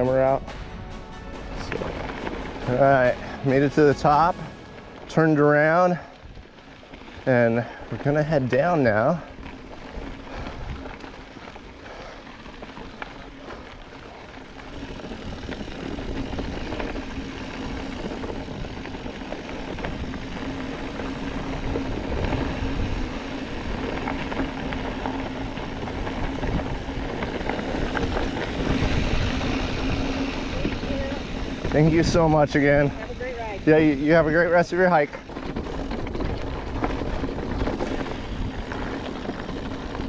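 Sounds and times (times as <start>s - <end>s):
bike tyre and trail noise: 0.0s - 40.0s
wind buffeting microphone: 9.3s - 11.3s, 14.7s - 40.0s
steady low hum: 14.7s - 40.0s.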